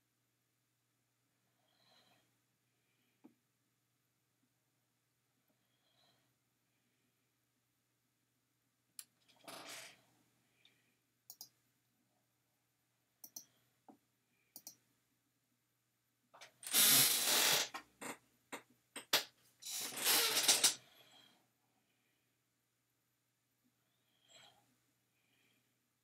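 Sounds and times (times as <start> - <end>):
computer mouse clicks: 11.3 - 11.6, 13.2 - 13.5, 14.5 - 14.8.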